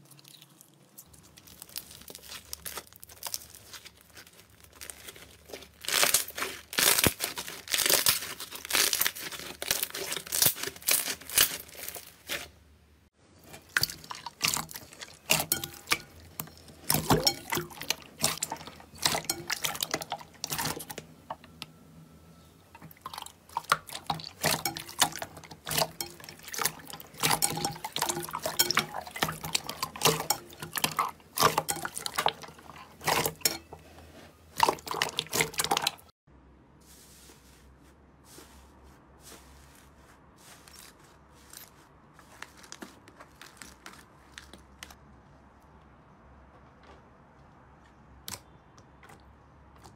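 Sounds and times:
slime squelching and popping: 0:00.0 - 0:12.5, 0:22.8 - 0:33.4.

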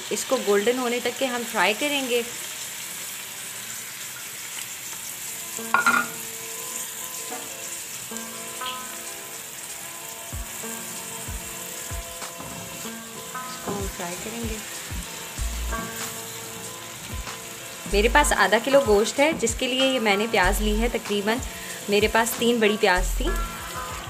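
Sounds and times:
onions sizzling in hot oil: 0:00.0 - 0:24.0
soft background music: 0:05.1 - 0:24.0.

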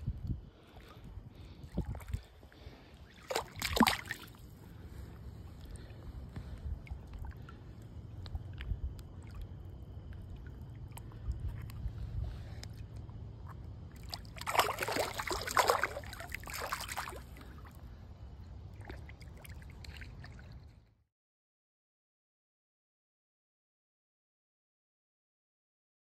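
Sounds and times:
low steady rumble: 0:00.0 - 0:21.0
water lapping and trickling: 0:00.0 - 0:21.0
fish splashing: 0:01.6 - 0:04.8, 0:06.8 - 0:17.8, 0:18.6 - 0:20.7.

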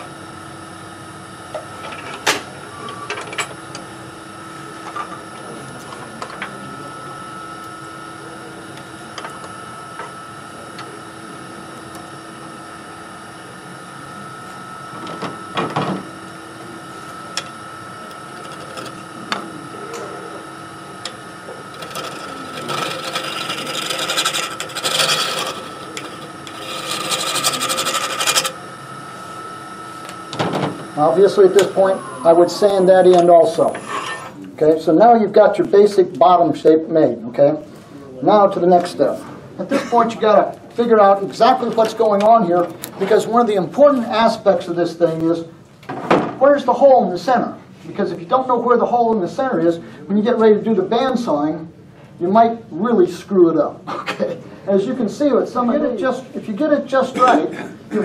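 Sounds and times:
wood lathe whine: 0:00.0 - 0:34.7
turning tool cutting wood: 0:17.1 - 0:19.4, 0:20.9 - 0:28.8.

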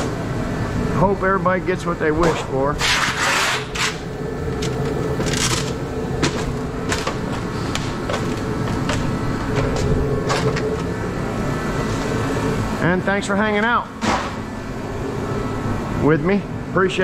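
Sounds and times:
steady hum: 0:00.0 - 0:17.0
clicks and knocks of panels: 0:14.0 - 0:14.4.

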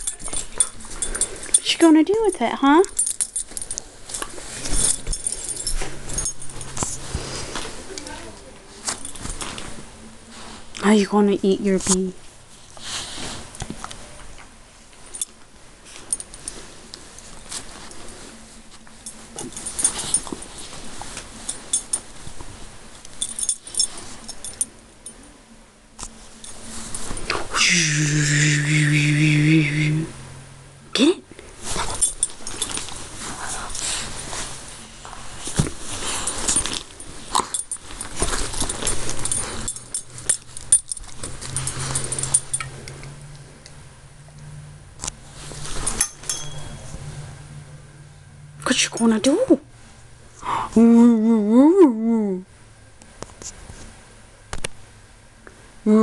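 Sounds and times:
light metallic jingling: 0:00.0 - 0:07.1, 0:18.9 - 0:22.3, 0:23.0 - 0:25.3, 0:31.6 - 0:34.5, 0:35.4 - 0:43.4, 0:45.4 - 0:47.2
soft rustling: 0:00.0 - 0:14.2, 0:14.8 - 0:25.3, 0:26.0 - 0:27.6, 0:31.4 - 0:43.2, 0:45.2 - 0:47.2.

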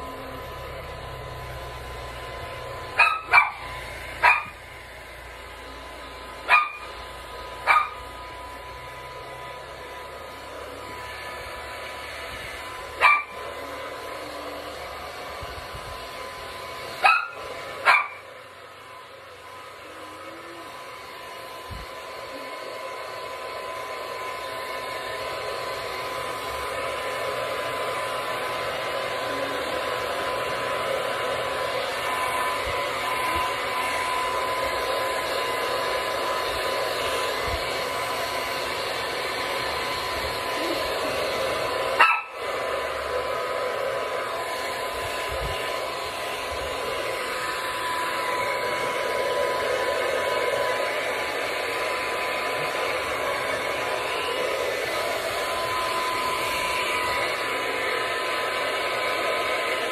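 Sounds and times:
hair dryer whining: 0:00.0 - 0:59.9
dog barking: 0:03.0 - 0:04.6, 0:06.5 - 0:06.9, 0:07.6 - 0:08.0, 0:13.0 - 0:13.4, 0:17.0 - 0:18.2, 0:42.0 - 0:42.5.

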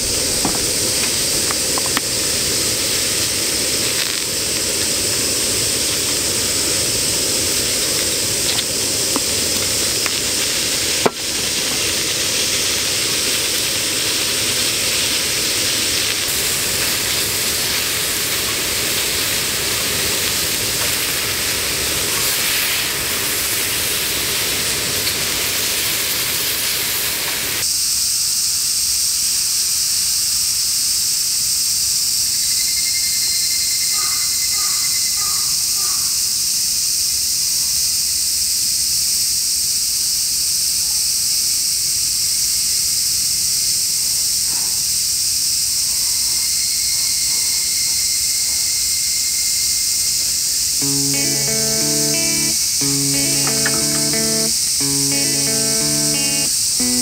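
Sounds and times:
insects droning: 0:00.0 - 0:57.0
meat sizzling on grill pan: 0:00.1 - 0:27.7, 0:50.8 - 0:57.0.

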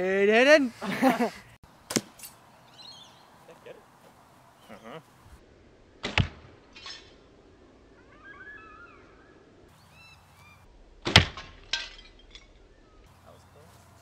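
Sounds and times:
arrows thwacking into target: 0:01.9 - 0:02.4, 0:06.0 - 0:07.1, 0:11.0 - 0:12.1
birds chirping faintly: 0:02.4 - 0:05.4, 0:07.7 - 0:10.7, 0:12.2 - 0:14.0.

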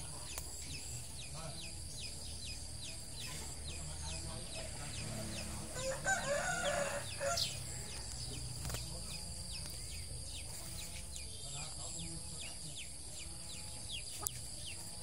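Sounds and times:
rooster crowing: 0:05.7 - 0:08.0.

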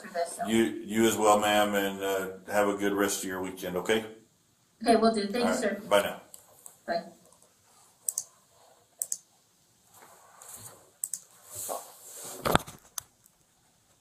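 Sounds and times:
soft rustling: 0:06.4 - 0:14.0
computer controls clicking: 0:08.0 - 0:08.3, 0:09.0 - 0:09.3, 0:11.0 - 0:11.3.

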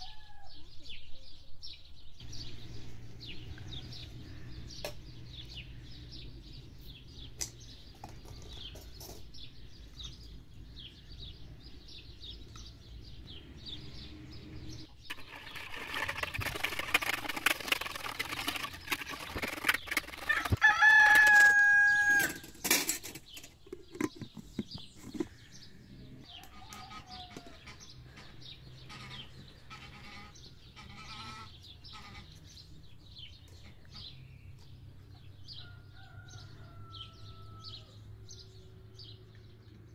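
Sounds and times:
rooster crowing: 0:00.0 - 0:00.7, 0:20.3 - 0:22.5, 0:26.3 - 0:27.6, 0:35.6 - 0:38.0
whisk beating in plastic bowl: 0:15.1 - 0:21.7
hens clucking: 0:23.7 - 0:32.4.

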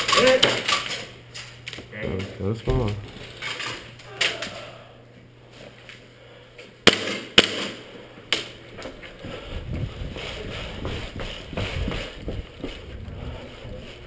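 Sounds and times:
airsoft gun shots: 0:06.8 - 0:07.8
running footsteps: 0:08.7 - 0:14.0.

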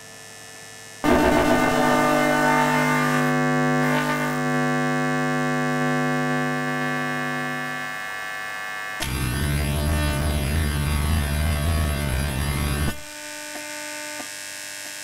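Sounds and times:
sustained electronic drone chord: 0:01.0 - 0:13.1.

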